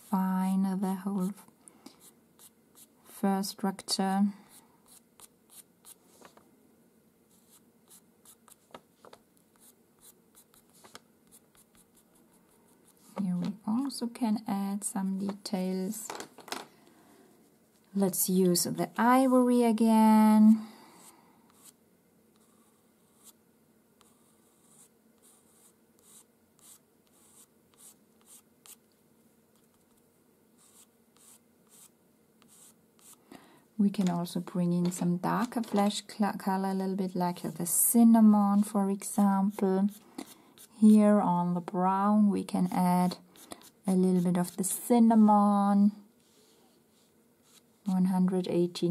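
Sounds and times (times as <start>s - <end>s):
pastel pencil scratching on paper: 1.1s - 2.9s, 4.8s - 6.2s, 7.3s - 8.7s, 9.5s - 13.2s, 21.0s - 23.4s, 24.0s - 28.8s, 30.6s - 33.2s, 38.4s - 41.1s, 42.6s - 44.8s, 46.2s - 47.9s.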